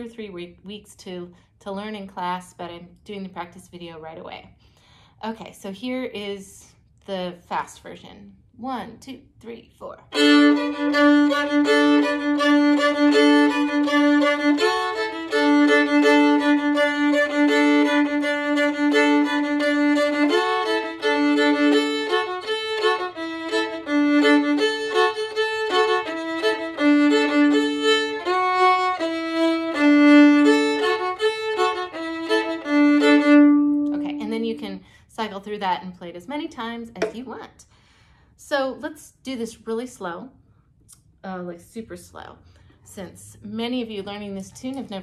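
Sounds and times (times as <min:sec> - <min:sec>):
solo violin fiddle tune: 0:10.1 - 0:34.5.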